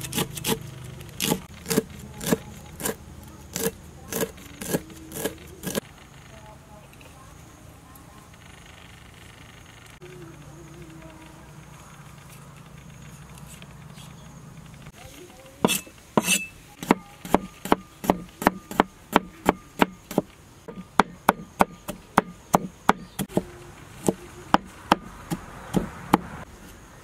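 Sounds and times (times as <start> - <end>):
cleaver chopping on wooden board: 1.2 - 5.8, 15.6 - 26.4.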